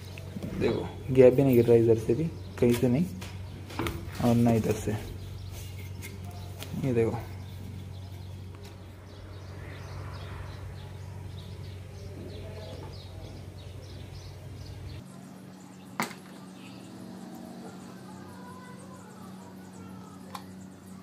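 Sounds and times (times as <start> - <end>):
faint high chirping: 4.2 - 21.0.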